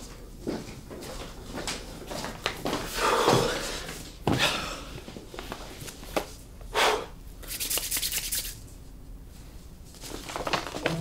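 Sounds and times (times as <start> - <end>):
paper rustling and crinkling: 9.9 - 11.0.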